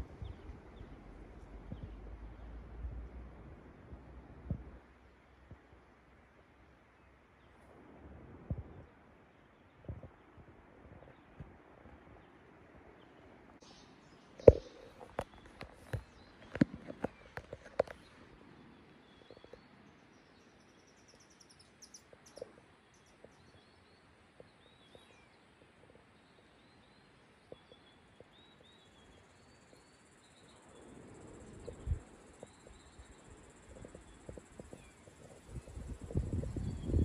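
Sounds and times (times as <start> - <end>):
small birds chirping: 0.0 - 2.7, 8.6 - 37.0
high insect hum: 29.1 - 37.0.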